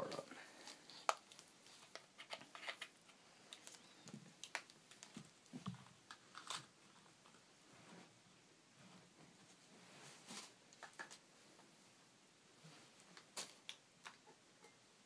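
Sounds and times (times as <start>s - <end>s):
faint clicks and taps of cord: 0.9s - 6.5s.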